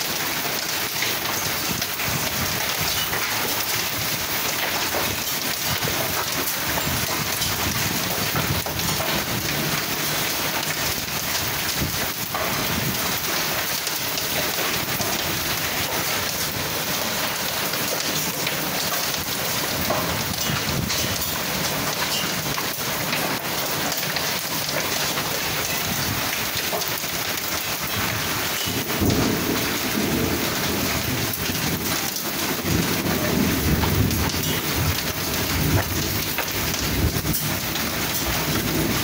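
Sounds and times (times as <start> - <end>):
hailstones ticking on concrete: 0.0 - 39.0
heavy rain hissing: 0.0 - 39.0
low rumble of thunder: 28.0 - 39.0.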